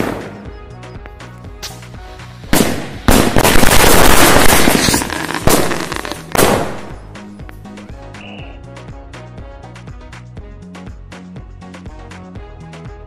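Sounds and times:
firecrackers banging: 0.0s - 0.5s, 1.6s - 7.1s
background music with bass beat: 0.0s - 4.1s, 5.0s - 13.0s.

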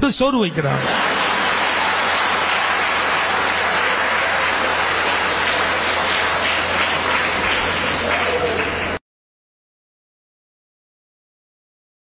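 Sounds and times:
audience applauding: 0.6s - 9.0s.

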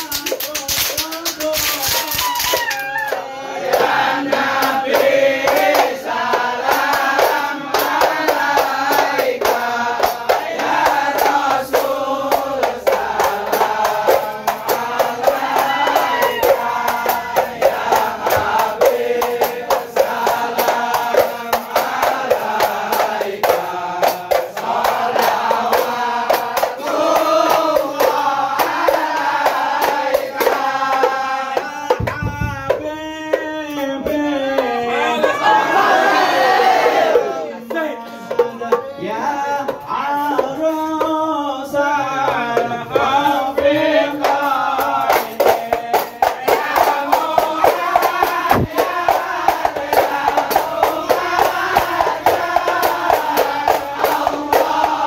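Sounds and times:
hand claps: 0.0s - 38.9s, 42.2s - 55.0s
men singing chant in unison: 0.0s - 55.0s
frame drum strokes: 31.9s - 33.4s, 45.3s - 55.0s.

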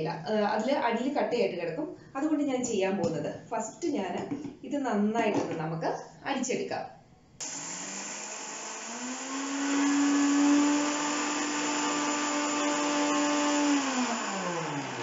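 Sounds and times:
mixer grinder motor: 7.4s - 15.0s.

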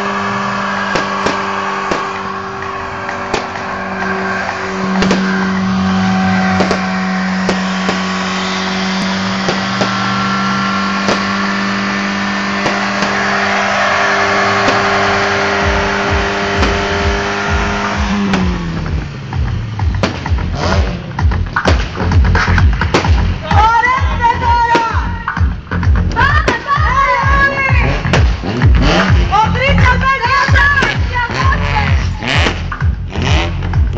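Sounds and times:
tyres spinning: 0.0s - 33.0s
car engine at high revs: 0.0s - 33.9s
engine cracks and pops: 0.3s - 13.5s, 14.2s - 15.2s, 15.8s - 23.4s, 27.9s - 29.4s.

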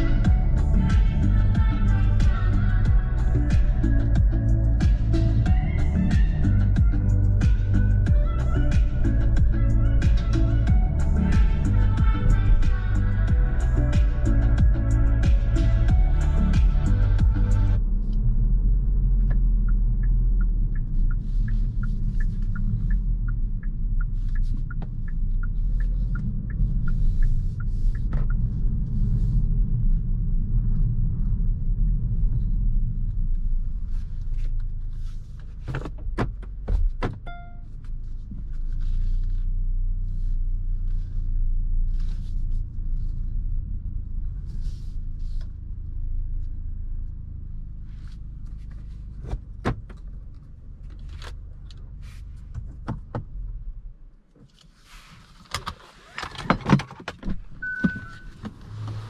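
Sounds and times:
turn signal clicking: 0.0s - 29.8s
car engine rumble: 0.0s - 59.0s.

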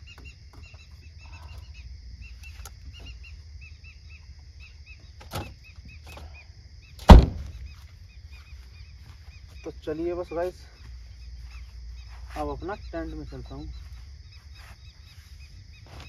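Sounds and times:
night insects chirping: 0.0s - 16.0s
car boot lid slamming: 7.1s - 7.5s.

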